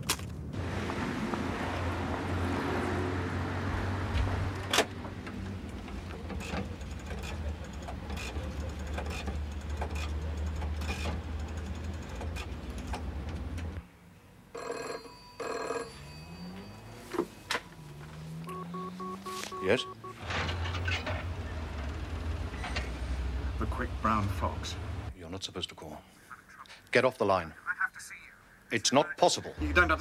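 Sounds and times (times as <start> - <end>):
street traffic rumble: 0.0 - 25.2, 29.4 - 30.0
telephone bell ringing: 14.5 - 17.5, 18.5 - 20.3.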